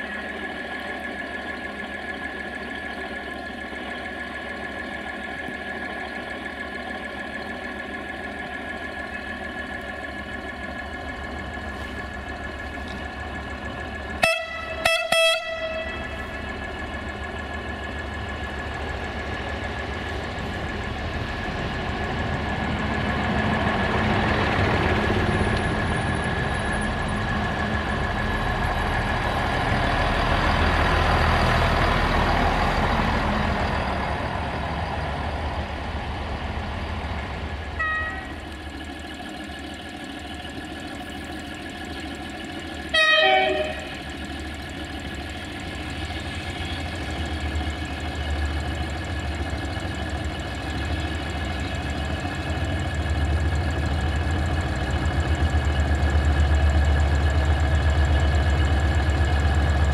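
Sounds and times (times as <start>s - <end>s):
train engine humming: 0.0s - 59.9s
train passing: 0.0s - 59.9s
short train horn toots: 14.2s - 16.2s, 37.8s - 38.4s, 42.9s - 44.0s.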